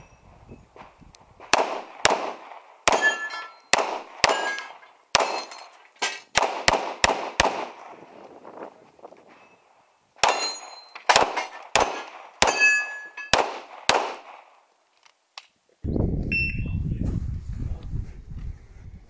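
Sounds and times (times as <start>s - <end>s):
pistol shots: 1.5s - 5.7s, 6.3s - 8.0s, 10.2s - 14.6s
steel targets ringing: 2.9s - 6.3s, 10.2s - 13.4s.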